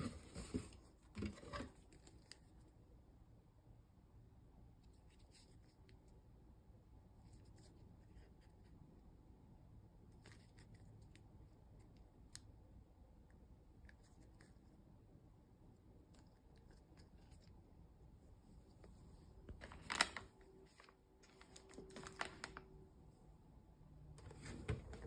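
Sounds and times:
low room hum: 0.0s - 25.0s.

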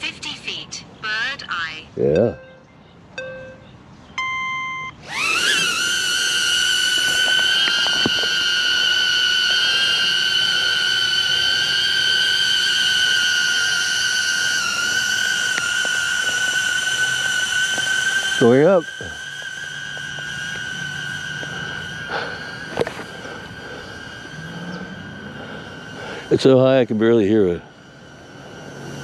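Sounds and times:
drone propellers whining: 1.2s - 29.0s
short beep: 4.2s - 5.0s.

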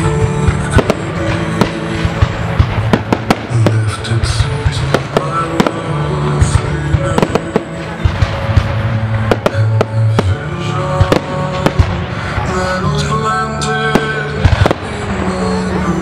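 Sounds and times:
loud music with heavy bass: 0.0s - 16.0s.

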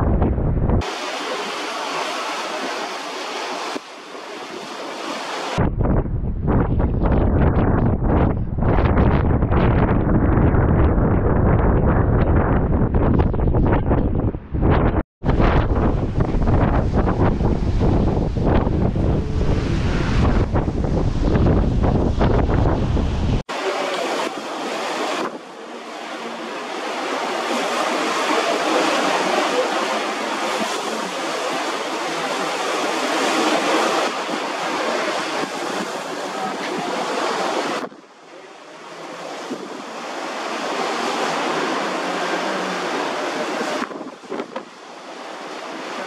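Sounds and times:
wind buffeting microphone: 0.0s - 0.9s, 5.0s - 23.5s, 39.2s - 44.8s
rushing water: 0.8s - 5.7s, 15.2s - 46.0s.

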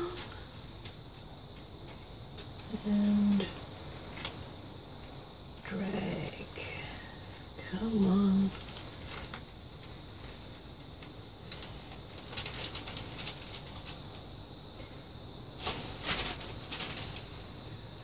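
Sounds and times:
baking paper rustling and crinkling: 7.7s - 14.2s, 15.6s - 17.8s.

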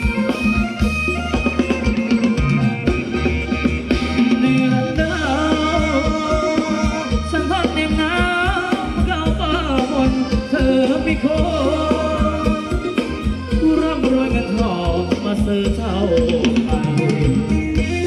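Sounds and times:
band playing dance music: 0.0s - 18.0s
person singing wavering melody: 4.3s - 18.0s.

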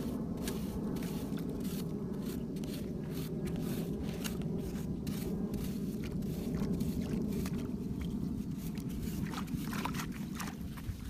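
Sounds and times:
low rumble: 0.0s - 11.0s
metal blade scraping stony soil: 0.4s - 6.5s.

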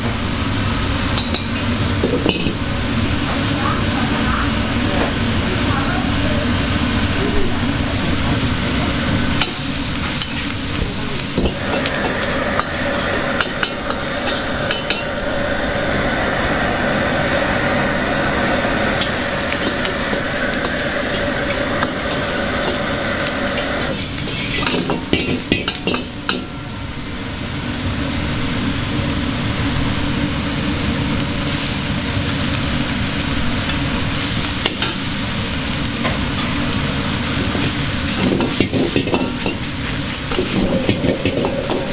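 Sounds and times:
rice sizzling in a wok: 0.0s - 41.9s
metal spatula scraping and clanking: 23.4s - 26.5s, 38.2s - 41.9s.

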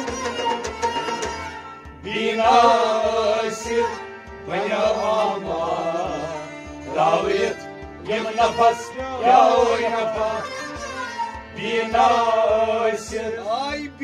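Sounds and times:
man singing: 7.2s - 10.6s, 11.6s - 14.0s.

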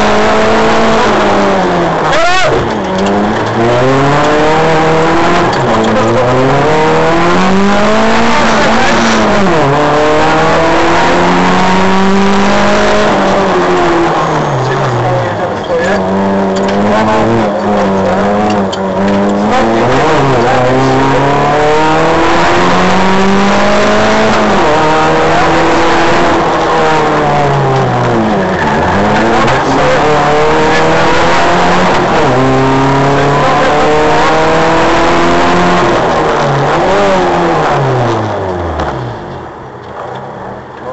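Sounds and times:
car engine accelerating: 0.0s - 40.9s.

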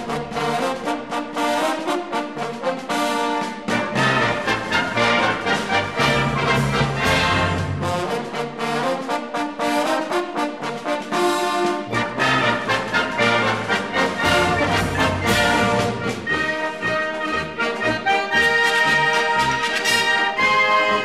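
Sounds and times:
brass instrumental music: 0.0s - 21.0s.

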